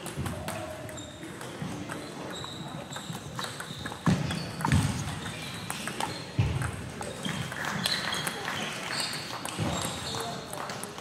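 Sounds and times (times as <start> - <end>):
table tennis ball clicking: 1.4 - 8.4.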